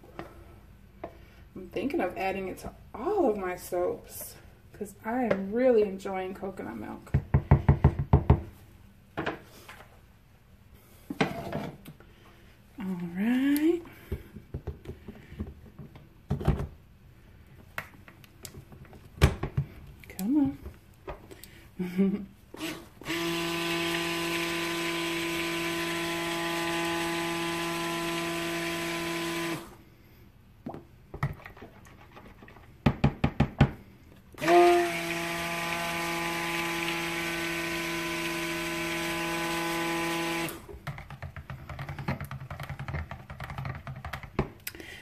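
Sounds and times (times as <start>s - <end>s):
stick blender running: 22.6s - 29.8s, 34.4s - 40.7s.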